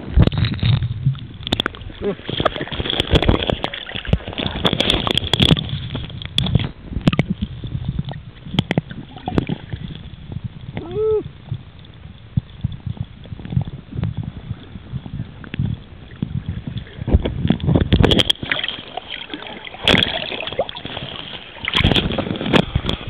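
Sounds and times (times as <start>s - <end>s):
low rumble: 0.0s - 18.4s
water sloshing underwater: 0.0s - 23.0s
water splashes: 0.0s - 23.0s.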